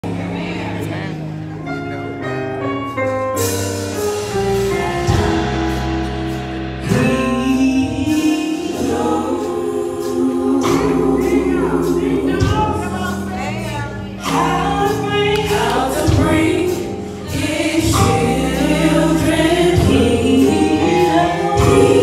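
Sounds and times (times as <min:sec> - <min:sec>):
keyboard accompaniment: 0:00.0 - 0:22.0
women's gospel group singing: 0:04.6 - 0:22.0.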